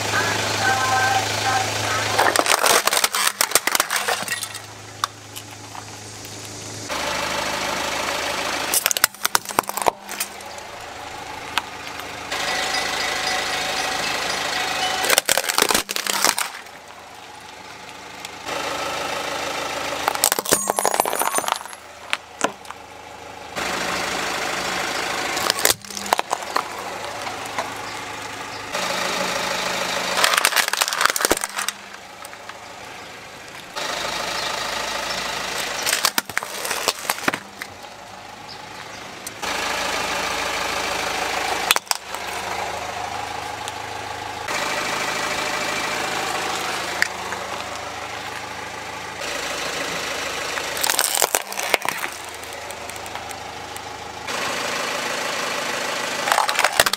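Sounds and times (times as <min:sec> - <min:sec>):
car engine running: 0:00.0 - 0:56.9
plastic toys cracking under tyre: 0:02.2 - 0:05.5, 0:08.7 - 0:10.6, 0:15.0 - 0:16.8, 0:20.0 - 0:22.8, 0:25.4 - 0:27.8, 0:30.2 - 0:32.6, 0:35.6 - 0:37.8, 0:41.6 - 0:42.5, 0:50.6 - 0:53.9, 0:56.2 - 0:56.9.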